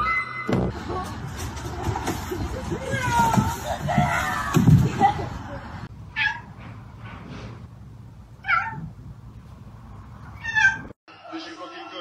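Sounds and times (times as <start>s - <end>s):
cat meowing: 8.4s - 8.9s, 10.4s - 10.9s.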